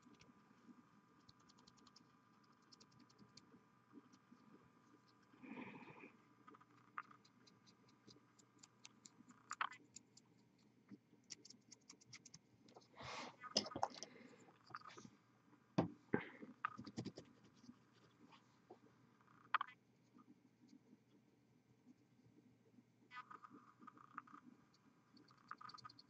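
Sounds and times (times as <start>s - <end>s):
paintbrush scratching and ticking: 1.2s - 5.4s, 6.5s - 13.0s, 16.6s - 18.3s, 25.1s - 26.0s.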